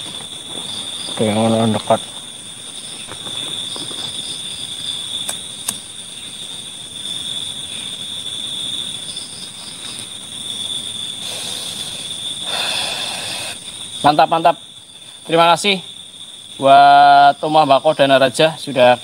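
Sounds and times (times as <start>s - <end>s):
night insects droning: 0.0s - 19.0s.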